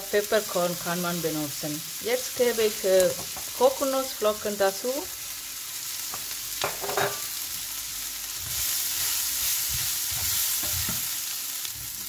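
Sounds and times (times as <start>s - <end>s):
vegetables sizzling in oil: 0.0s - 12.0s
spatula scraping pan: 8.5s - 11.2s.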